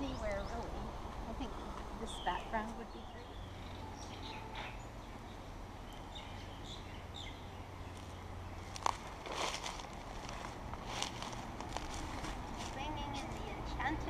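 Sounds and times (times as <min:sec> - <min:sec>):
birds chirping: 0:00.0 - 0:14.0
low background hum: 0:00.0 - 0:14.0.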